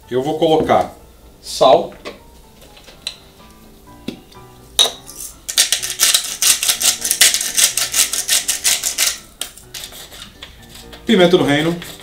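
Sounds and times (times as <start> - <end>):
salt grinder crunching: 5.5 - 11.0.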